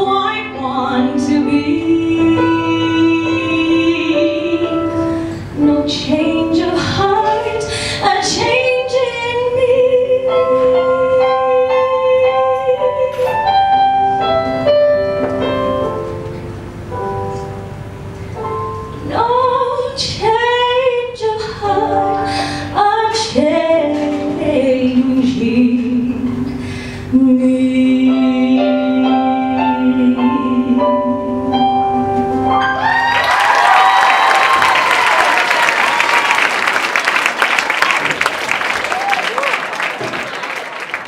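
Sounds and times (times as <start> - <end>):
woman singing a ballad: 0.0 - 13.9, 19.0 - 32.3
keyboard accompaniment: 0.0 - 33.2
audience applauding: 32.8 - 41.0.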